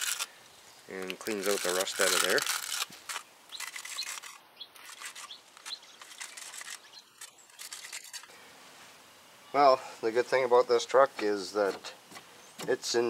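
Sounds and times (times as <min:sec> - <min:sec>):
wire brush scratching metal: 0:00.0 - 0:00.3, 0:01.0 - 0:08.3.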